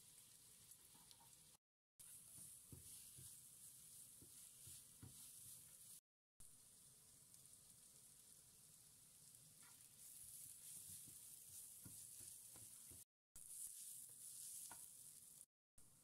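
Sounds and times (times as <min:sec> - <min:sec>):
light stirring knocks: 0:00.0 - 0:06.0, 0:09.5 - 0:15.2
food sizzling in oil: 0:00.0 - 0:15.5.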